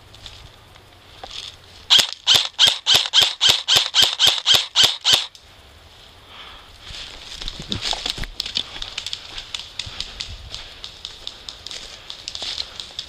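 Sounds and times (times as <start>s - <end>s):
airsoft rifle shots: 1.9s - 5.3s.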